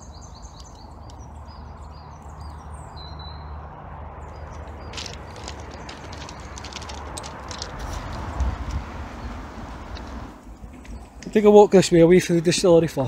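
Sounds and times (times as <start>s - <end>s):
small birds chirping: 0.0s - 12.8s
footsteps crunching dry leaves: 4.2s - 8.7s.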